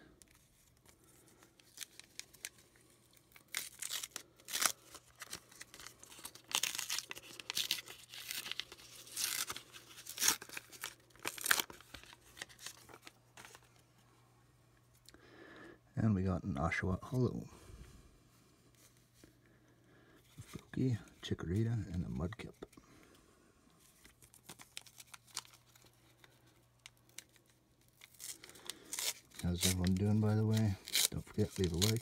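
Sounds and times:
wrapper tearing and crinkling: 0:00.0 - 0:13.7, 0:23.9 - 0:32.0.

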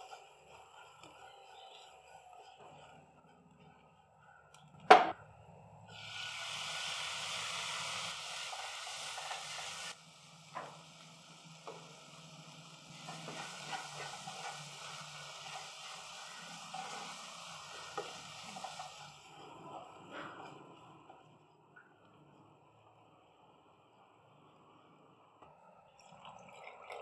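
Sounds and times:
tomatoes sizzling in hot oil: 0:05.9 - 0:19.5
wooden spatula scraping a pan: 0:13.0 - 0:19.1.

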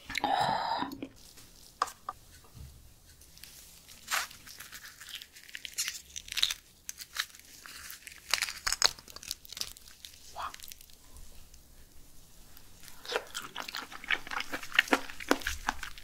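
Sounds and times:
wet tearing and squelching: 0:03.8 - 0:11.0, 0:12.9 - 0:16.0.

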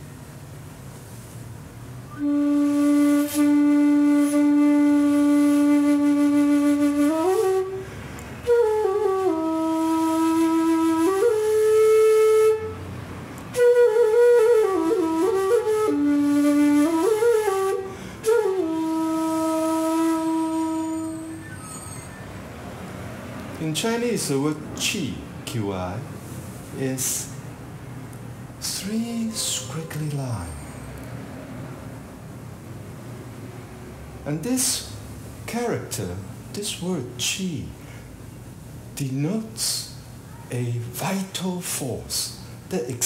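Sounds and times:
bamboo flute playing slowly: 0:02.1 - 0:12.9, 0:13.5 - 0:22.4.

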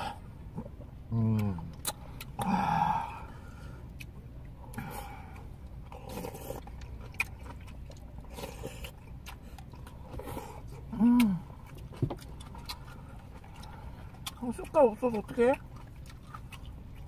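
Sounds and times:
chewing and slurping: 0:00.0 - 0:17.0
low steady hum: 0:00.0 - 0:17.0
person humming: 0:10.9 - 0:11.4.

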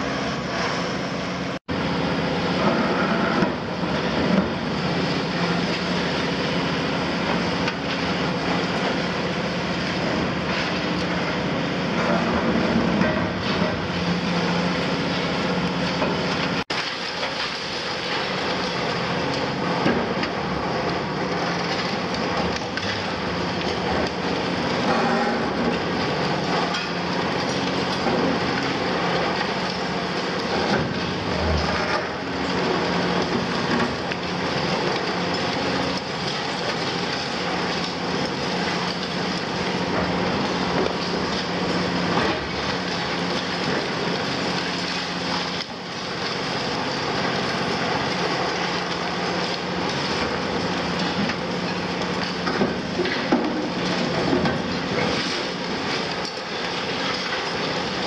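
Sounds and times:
excavator diesel engine running: 0:00.0 - 0:58.0
concrete debris cracking and crunching: 0:02.7 - 0:58.0.

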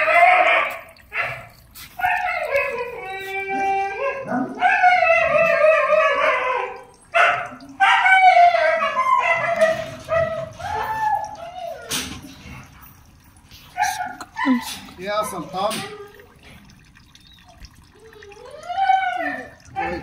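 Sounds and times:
dog whining and howling: 0:00.0 - 0:01.4, 0:02.0 - 0:12.4, 0:13.8 - 0:14.9, 0:18.0 - 0:20.0.

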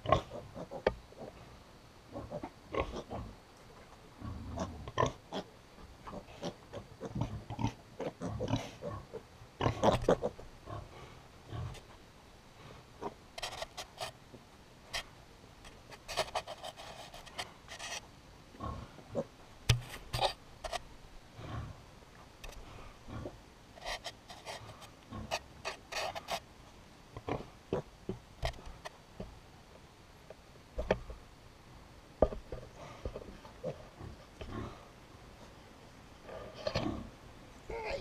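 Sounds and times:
piglets grunting and sniffing: 0:00.0 - 0:01.4, 0:04.2 - 0:11.9, 0:15.9 - 0:18.0, 0:18.6 - 0:19.3, 0:22.5 - 0:26.5, 0:32.5 - 0:35.0, 0:36.2 - 0:38.0.

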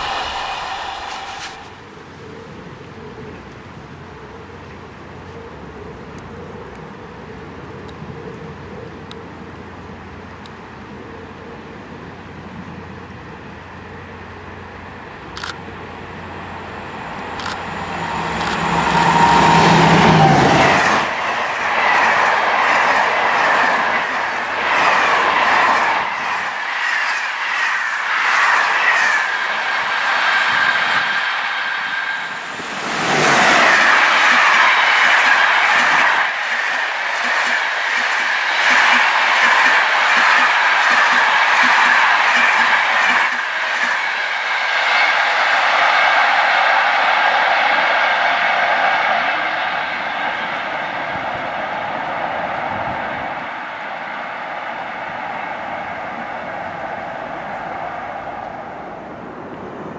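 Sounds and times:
locomotive hum: 0:00.0 - 0:59.9.

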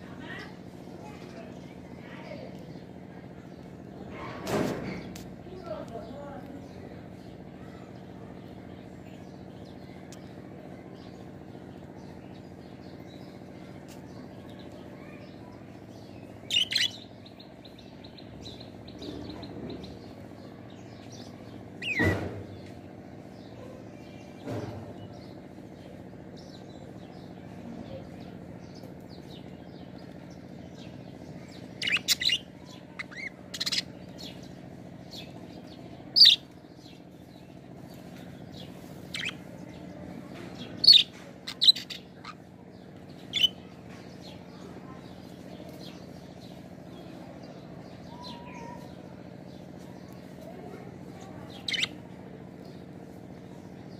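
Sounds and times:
budgerigars chirping: 0:16.4 - 0:17.1, 0:31.4 - 0:34.5, 0:36.1 - 0:37.0, 0:38.6 - 0:39.8, 0:40.6 - 0:42.4, 0:51.5 - 0:52.0.

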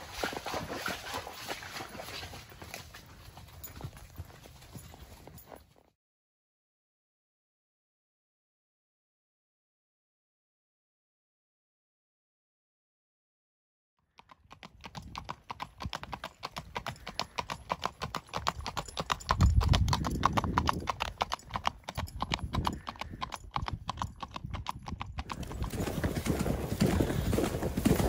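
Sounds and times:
hoofbeats on dirt trail: 0:00.0 - 0:05.9, 0:14.2 - 0:28.0
hooves clip-clopping on pavement: 0:00.0 - 0:05.9, 0:14.2 - 0:28.0.

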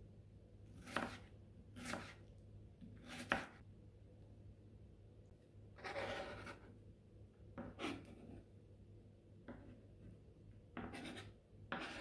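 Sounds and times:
knife scraping cutting board: 0:00.8 - 0:02.2, 0:03.0 - 0:03.6, 0:05.8 - 0:06.7, 0:07.6 - 0:08.5, 0:10.8 - 0:12.0.

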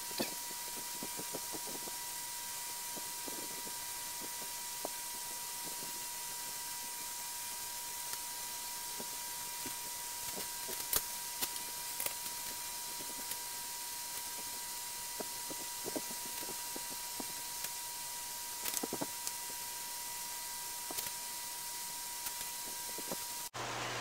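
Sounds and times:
steady hiss with high tone: 0:00.0 - 0:24.0.

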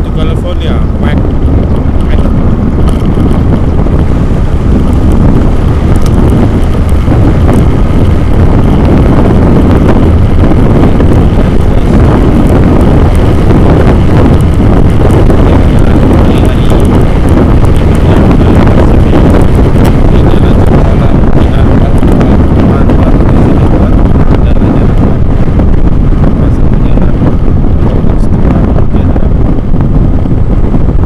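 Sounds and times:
low rumble of travel: 0:00.0 - 0:31.0
wind buffeting microphone: 0:00.0 - 0:31.0.

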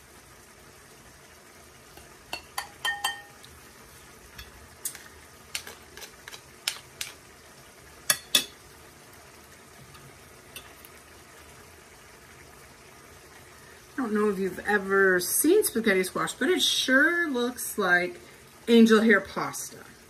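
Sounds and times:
utensils clinking on ceramic: 0:02.4 - 0:03.4.

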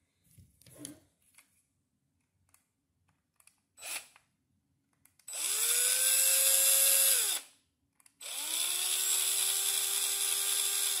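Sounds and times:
cordless drill whirring: 0:03.8 - 0:04.2, 0:05.3 - 0:07.5, 0:08.2 - 0:11.0.

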